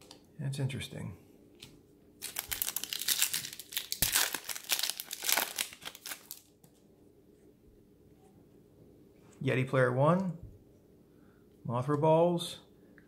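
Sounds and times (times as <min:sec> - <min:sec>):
wrapper crinkling and tearing: 0:02.2 - 0:06.6.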